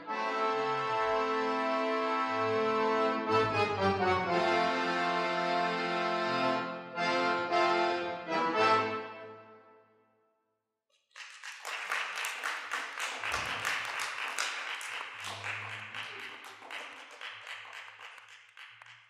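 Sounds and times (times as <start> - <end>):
audience applauding: 11.0 - 19.0.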